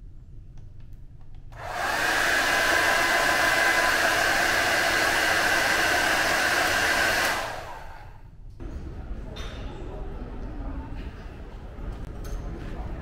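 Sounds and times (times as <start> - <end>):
hair dryer running: 1.6 - 8.2.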